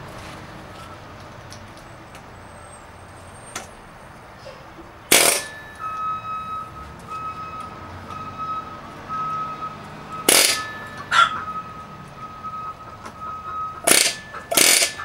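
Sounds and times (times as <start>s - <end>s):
air hammer bursts on metal: 5.1s - 5.5s, 10.3s - 10.7s, 13.8s - 15.0s
metallic ringing tone: 5.1s - 7.4s, 10.2s - 15.0s.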